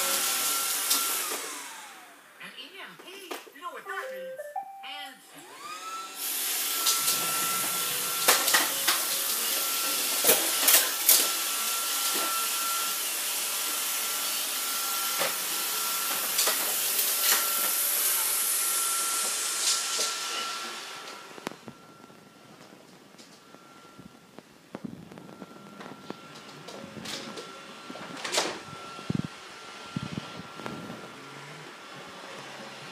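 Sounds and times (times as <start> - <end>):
robot vacuum motor whining: 5.4 - 22.1.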